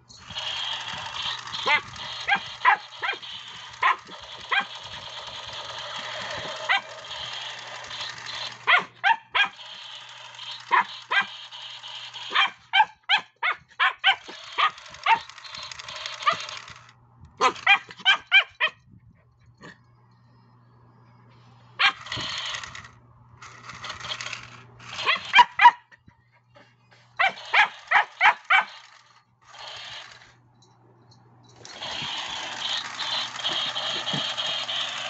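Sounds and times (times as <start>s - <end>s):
toy gun electronic sound effect: 0.1s - 8.8s, 9.4s - 12.5s, 14.2s - 16.9s, 21.8s - 22.9s, 23.6s - 25.5s, 27.2s - 30.3s, 31.6s - 35.0s
dog barking: 1.6s - 3.2s, 3.8s - 4.7s, 6.7s - 6.9s, 8.7s - 9.6s, 10.7s - 11.3s, 12.3s - 15.3s, 17.4s - 18.8s, 25.0s - 25.9s, 27.2s - 28.8s.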